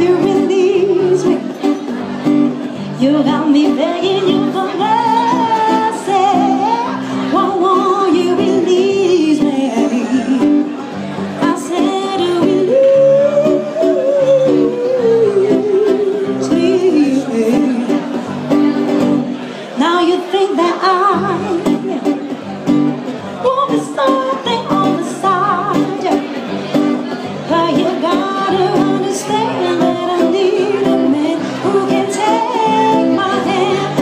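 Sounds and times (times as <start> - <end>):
woman singing into a microphone: 0.0 - 19.0, 19.6 - 22.4, 23.2 - 26.6, 27.4 - 34.0
strummed acoustic guitar: 0.0 - 34.0.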